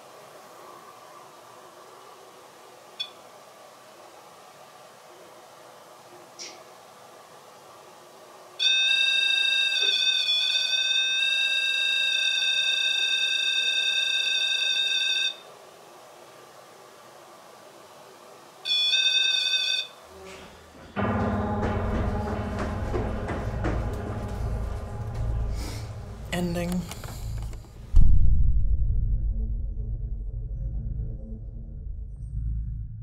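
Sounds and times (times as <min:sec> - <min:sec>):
high electronic alarm tone: 0:08.6 - 0:15.4, 0:18.7 - 0:20.0
music: 0:21.0 - 0:33.0.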